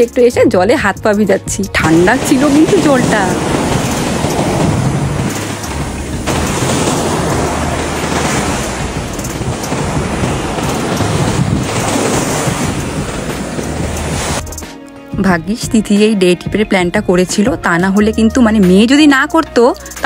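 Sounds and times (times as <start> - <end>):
wind buffeting microphone: 1.7 - 14.5
ocean surf washing in: 1.8 - 14.6.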